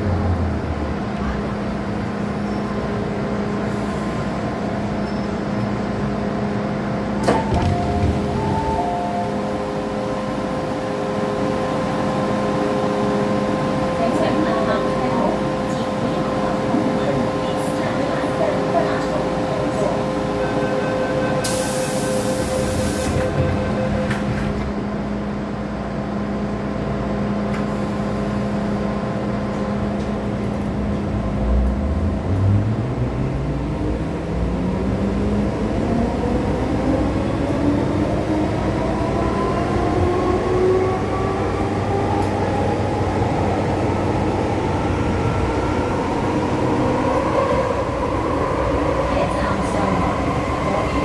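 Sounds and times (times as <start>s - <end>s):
train electrical hum: 0.0s - 51.0s.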